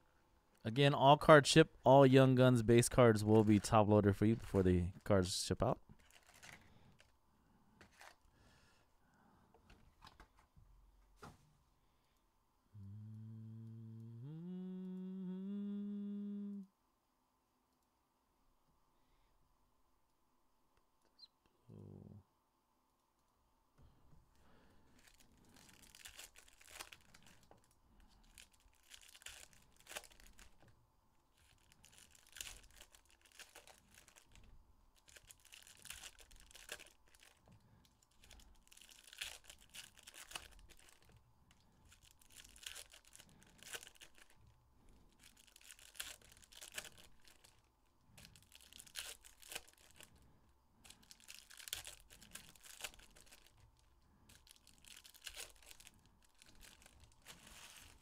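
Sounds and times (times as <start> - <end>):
wrappers crinkling: 5.9 - 7.2, 24.8 - 30.7, 31.3 - 50.2, 50.8 - 58.0
foil packs tearing: 6.0 - 6.7, 25.0 - 27.5, 28.3 - 30.6, 38.2 - 41.1, 41.9 - 44.4, 45.2 - 47.6, 48.3 - 50.1, 50.9 - 53.6, 54.3 - 58.0.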